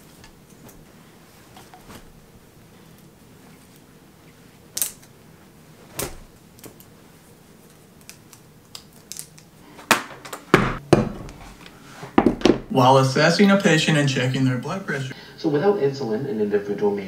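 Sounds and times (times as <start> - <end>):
clothes rustling: 0.0 - 8.6, 9.5 - 12.6.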